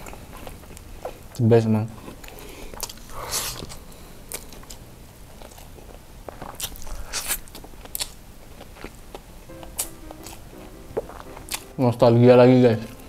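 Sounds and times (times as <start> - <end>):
person chewing and smacking: 2.0 - 10.4.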